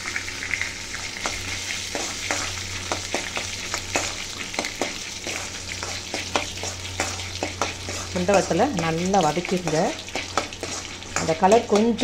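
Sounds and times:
berries sizzling in oil: 0:00.0 - 0:12.0
steel spoon clicking against pan: 0:11.2 - 0:12.0.

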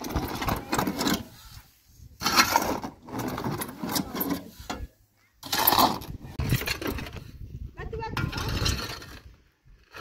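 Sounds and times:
shovel scraping sand and gravel: 0:00.0 - 0:07.2.

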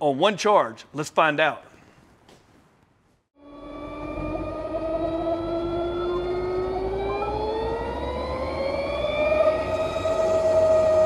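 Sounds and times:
electric scooter motor whining: 0:03.4 - 0:11.0.

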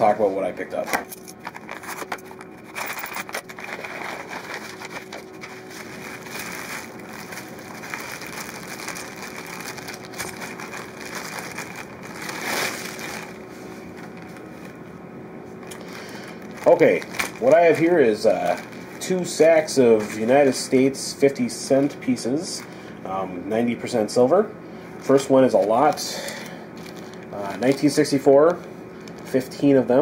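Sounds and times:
plastic packaging crinkling: 0:01.3 - 0:14.8, 0:15.6 - 0:21.0, 0:25.1 - 0:29.5.

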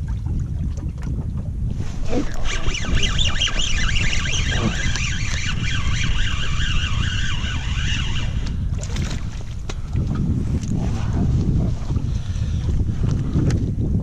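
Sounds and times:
wind rumble on microphone: 0:00.0 - 0:14.0
fishing reel gears whining: 0:02.0 - 0:08.7.

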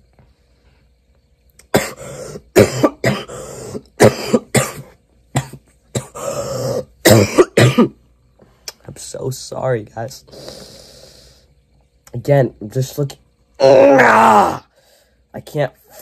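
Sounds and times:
man coughing harshly: 0:01.7 - 0:08.0.

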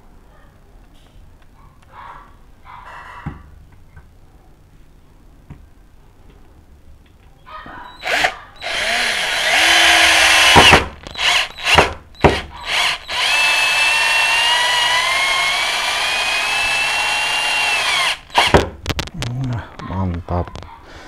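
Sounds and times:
cordless drill whining: 0:08.0 - 0:18.6.

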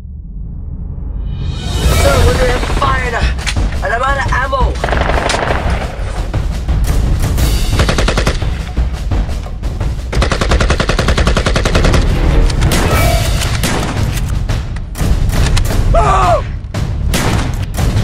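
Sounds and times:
dramatic music with heavy bass: 0:00.0 - 0:18.0
automatic gunfire bursts: 0:04.8 - 0:05.9, 0:07.8 - 0:08.4, 0:10.2 - 0:12.0.

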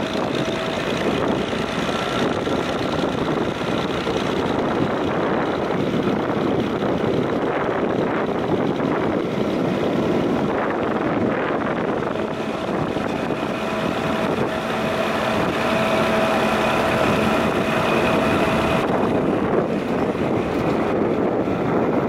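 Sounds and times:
tractor engine running: 0:00.0 - 0:22.0
thin whine: 0:09.0 - 0:22.0.

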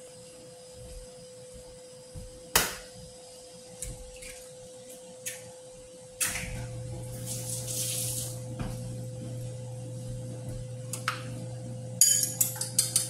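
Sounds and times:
thin steady whine: 0:00.0 - 0:13.0
low hum: 0:06.2 - 0:12.6.

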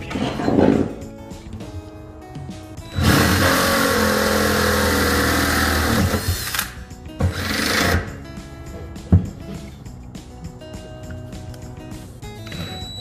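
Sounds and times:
faint background music: 0:00.0 - 0:13.0
cordless drill boring metal: 0:02.9 - 0:06.7.

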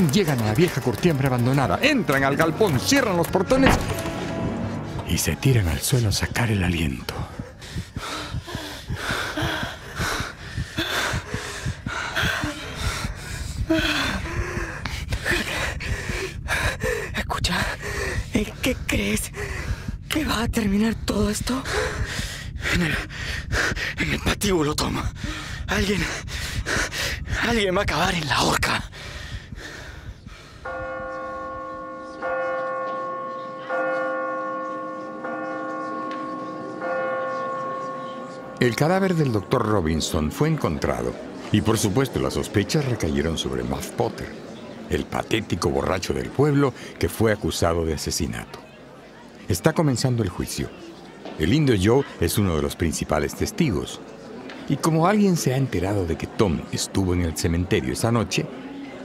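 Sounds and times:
church bell tolling: 0:01.9 - 0:06.4, 0:30.7 - 0:41.1
people panting and gasping: 0:07.0 - 0:20.1, 0:21.1 - 0:27.7, 0:28.6 - 0:32.7.

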